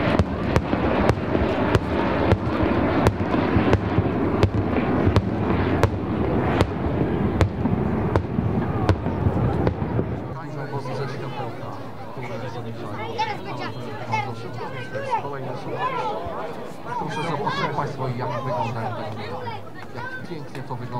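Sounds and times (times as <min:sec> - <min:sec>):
pyrotechnic bangs: 0:00.0 - 0:10.4
continuous rushing roar: 0:00.0 - 0:20.9.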